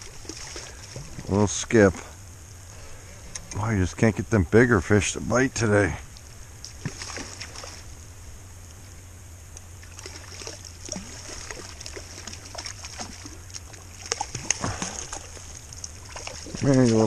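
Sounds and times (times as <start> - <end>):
fish splashing at water surface: 0.0 - 1.4, 6.7 - 8.0, 9.8 - 17.0.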